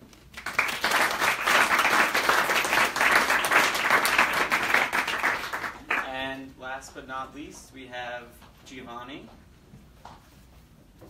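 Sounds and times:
audience applauding: 0.3 - 6.1.

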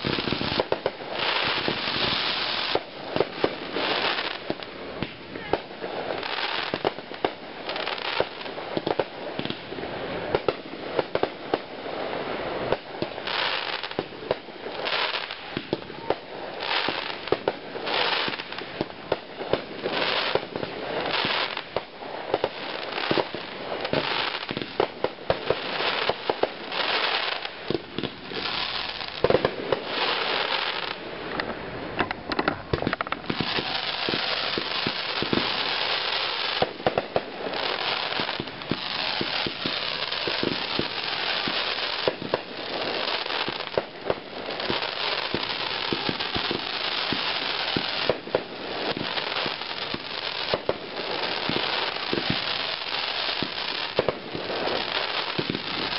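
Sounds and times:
fireworks hissing and crackling: 0.0 - 55.9
fireworks shells bursting: 29.1 - 43.9.

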